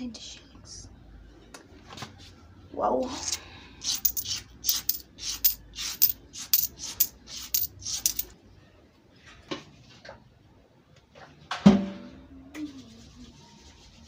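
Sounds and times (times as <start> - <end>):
coins clinking on wooden table: 3.8 - 8.3.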